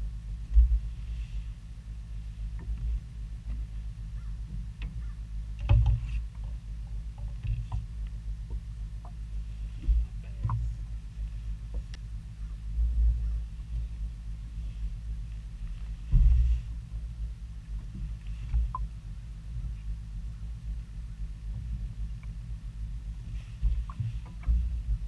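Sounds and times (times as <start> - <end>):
boat low rumble: 0.0 - 25.0
knocks and clicks from hull: 4.5 - 6.6, 7.2 - 7.9, 9.8 - 10.8.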